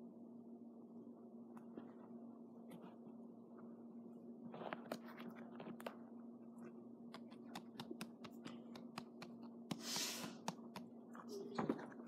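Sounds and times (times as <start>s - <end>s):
steady low hum: 0.0s - 12.0s
clicks and taps handling books: 7.1s - 9.8s.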